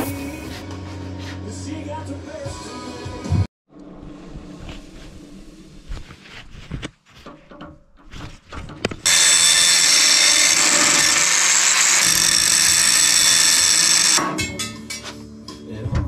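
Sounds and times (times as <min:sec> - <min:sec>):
handling knocks and clicks: 0:06.6 - 0:09.1
power tool whining: 0:09.0 - 0:14.2.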